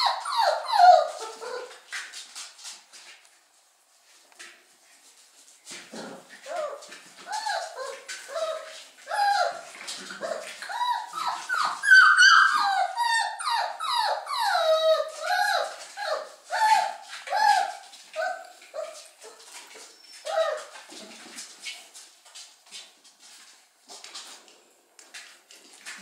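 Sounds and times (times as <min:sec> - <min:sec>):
puppies whining and yelping: 0:00.0 - 0:01.9, 0:06.1 - 0:21.2.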